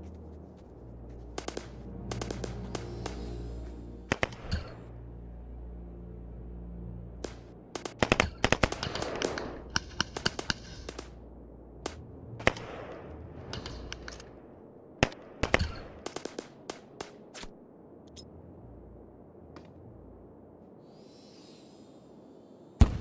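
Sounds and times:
small-arms gunfire: 0:01.4 - 0:03.3.

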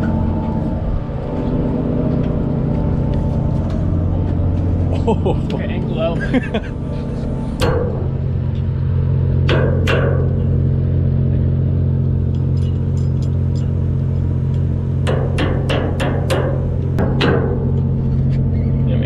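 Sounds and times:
boat machinery humming: 0:00.0 - 0:19.0
hammer striking metal: 0:07.6 - 0:08.2, 0:09.4 - 0:10.6, 0:15.0 - 0:17.8.

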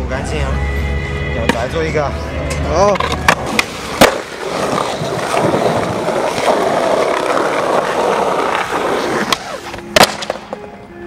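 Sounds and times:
skateboard wheels rolling on concrete: 0:01.9 - 0:11.0
skateboard tail snap: 0:03.0 - 0:04.4, 0:09.2 - 0:10.7
skateboard landing clack: 0:03.0 - 0:07.3, 0:08.5 - 0:10.7.

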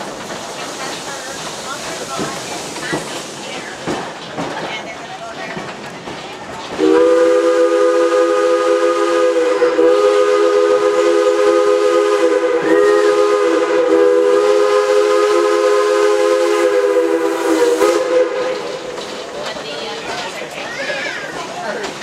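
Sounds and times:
steam locomotive whistle: 0:06.8 - 0:18.8.

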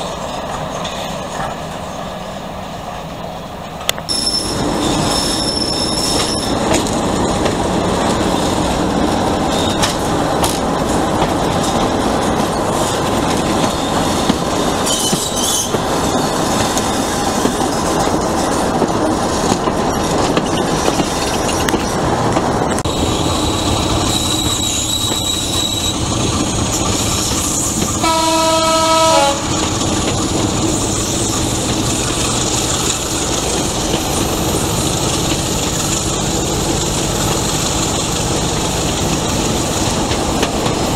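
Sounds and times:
train wheels and engine: 0:00.0 - 0:40.9
train horn blast: 0:28.0 - 0:29.6.

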